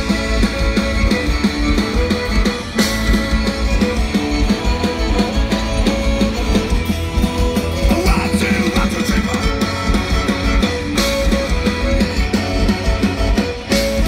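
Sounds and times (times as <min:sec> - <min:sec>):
accordion: 0:00.0 - 0:14.0
drums beating: 0:00.0 - 0:14.0
electric guitar: 0:00.0 - 0:14.0
fiddle: 0:00.0 - 0:14.0.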